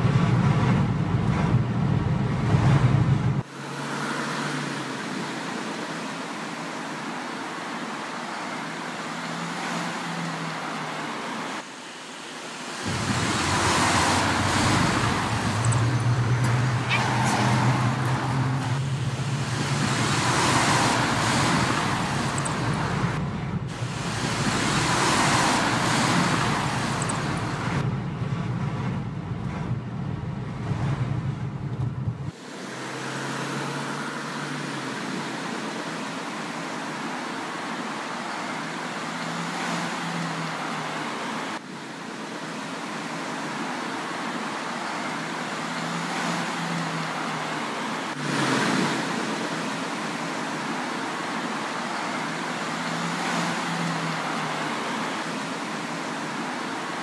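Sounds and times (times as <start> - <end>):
engine idling: 0.0 - 3.6, 12.8 - 32.4
car engine humming: 0.0 - 41.8, 43.2 - 57.0
passing vehicles: 0.0 - 57.0.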